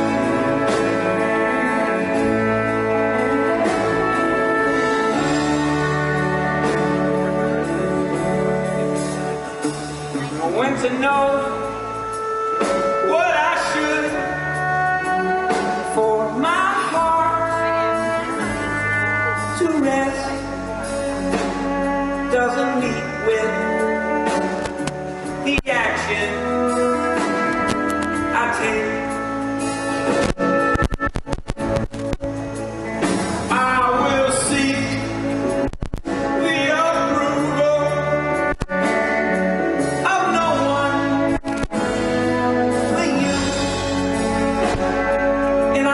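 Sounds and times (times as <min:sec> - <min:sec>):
acoustic guitars playing: 0:00.0 - 0:45.9
sliding melody notes: 0:00.0 - 0:45.9.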